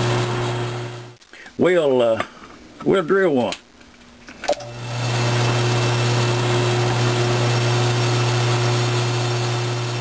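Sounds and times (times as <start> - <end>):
drill press motor humming: 4.6 - 10.0.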